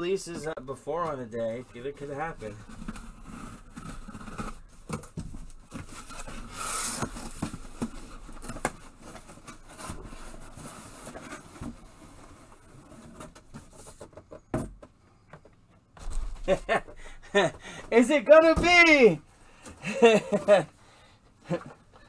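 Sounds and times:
cardboard rustling and scraping: 0.1s - 14.8s.

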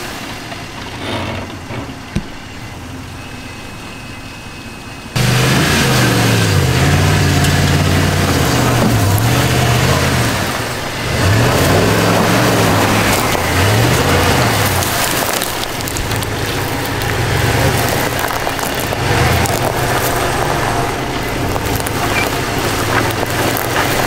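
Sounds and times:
truck engine revving: 0.0s - 24.0s
faint high whine: 0.2s - 5.2s.

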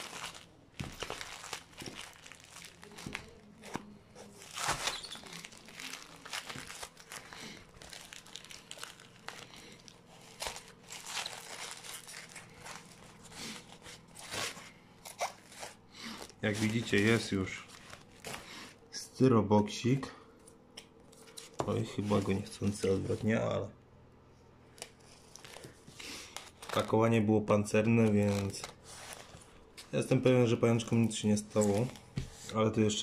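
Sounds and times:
paper crinkling and tearing: 0.0s - 18.7s, 24.8s - 27.0s, 27.8s - 30.0s.

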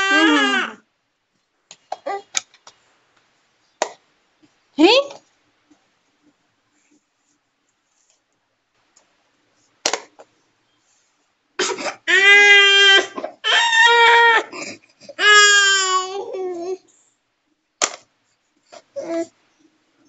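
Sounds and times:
toddler crying: 0.0s - 0.8s, 12.1s - 14.6s, 15.2s - 16.8s.

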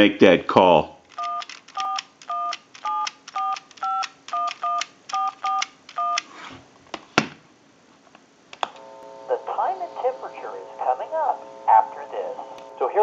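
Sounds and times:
two-tone keypad beeps: 1.1s - 6.3s.

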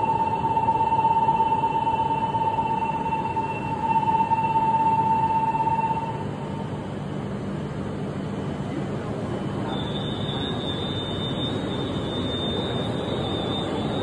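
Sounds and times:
train low hum: 0.0s - 14.0s.

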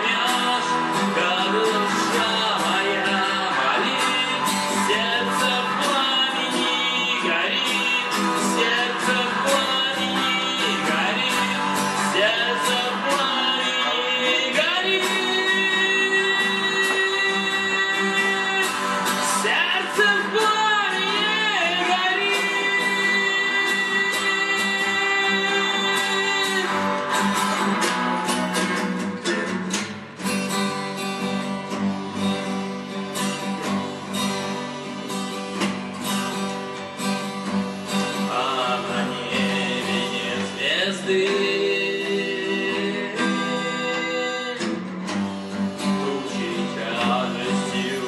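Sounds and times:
man singing: 0.0s - 28.7s, 37.9s - 44.9s, 45.5s - 48.0s
electric guitar: 0.0s - 48.0s
strummed acoustic guitar: 0.0s - 48.0s.

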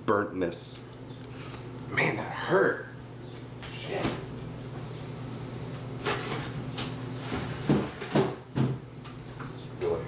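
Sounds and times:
steady low hum: 0.0s - 10.0s
dishes and cupboards knocking: 7.5s - 8.8s.

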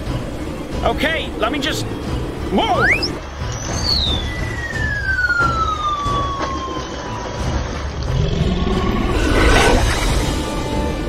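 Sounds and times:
falling whistle sliding down: 2.8s - 7.0s.

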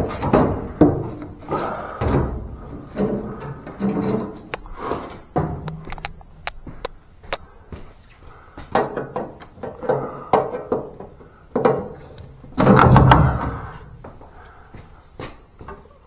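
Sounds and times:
knocks: 12.6s - 13.7s.

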